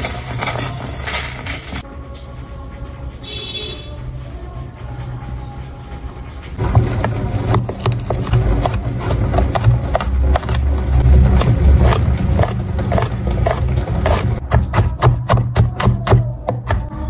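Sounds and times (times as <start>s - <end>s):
soft background music: 1.7s - 8.2s
knife chopping on wooden board: 6.7s - 16.9s.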